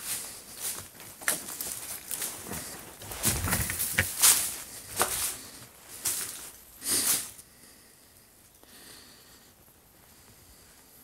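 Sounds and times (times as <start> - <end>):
footsteps crunching through dry leaves: 0.0 - 7.4.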